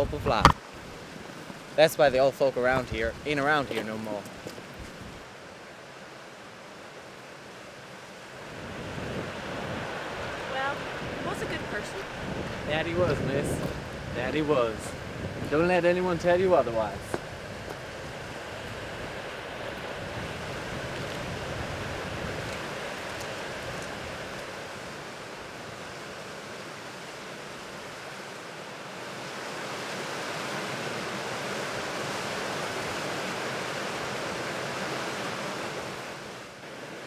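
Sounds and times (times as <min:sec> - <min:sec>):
sea surf: 0:00.0 - 0:37.0
wind rushing: 0:08.4 - 0:24.3.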